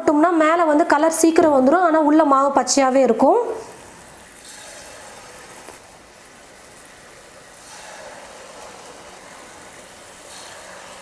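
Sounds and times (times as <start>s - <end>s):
batter sizzling in hot oil: 3.2s - 11.0s.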